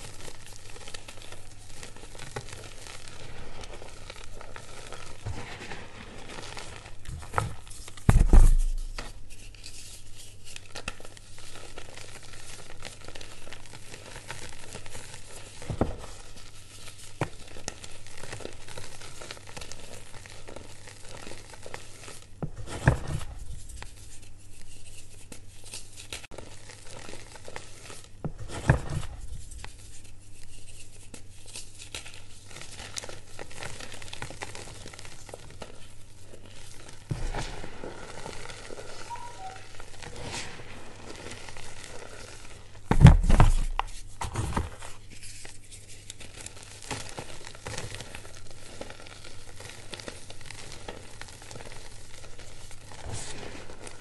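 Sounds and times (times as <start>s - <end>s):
chalk crushed and crumbled by hand: 0.0s - 54.0s
heavy thump with crunching: 8.1s - 9.0s, 42.9s - 44.7s.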